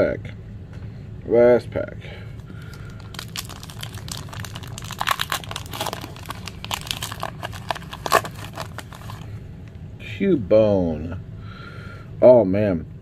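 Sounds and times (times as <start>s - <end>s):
foil wrapper crinkling and tearing: 2.4s - 9.3s.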